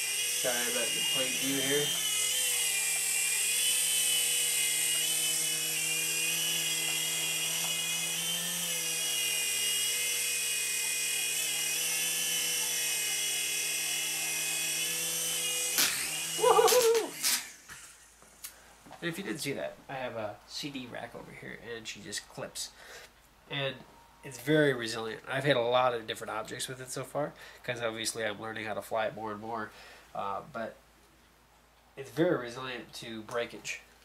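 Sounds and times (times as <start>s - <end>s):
mini helicopter rotor whine: 0.0s - 18.4s.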